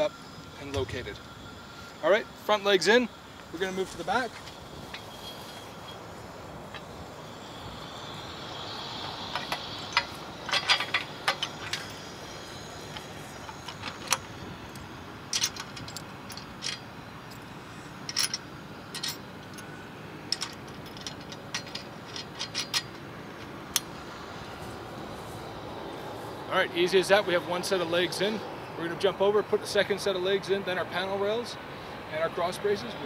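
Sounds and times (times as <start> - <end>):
outdoor background noise: 0.0 - 33.0
metal clicks and clinks: 9.3 - 12.2, 12.9 - 19.7, 20.3 - 23.9.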